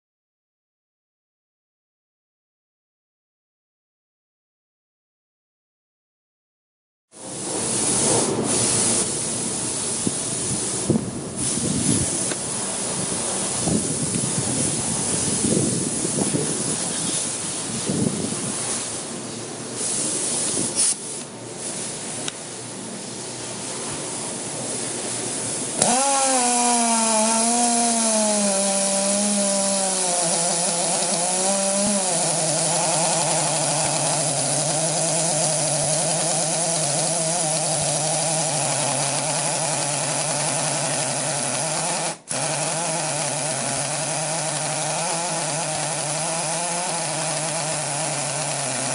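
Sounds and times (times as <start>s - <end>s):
rushing wind-like noise: 9.8s - 19.1s
rotary hammer drill boring concrete: 11.6s - 18.1s, 25.6s - 48.9s.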